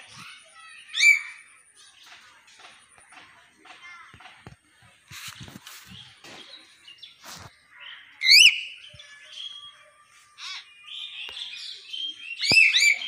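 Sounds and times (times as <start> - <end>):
bird harsh calls: 5.6 - 10.8, 11.4 - 13.0.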